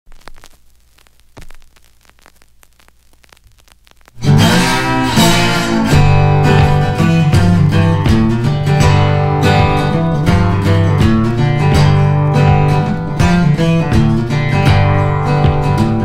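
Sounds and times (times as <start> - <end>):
bass line: 4.1 - 16.0
strummed acoustic guitar: 4.2 - 16.0.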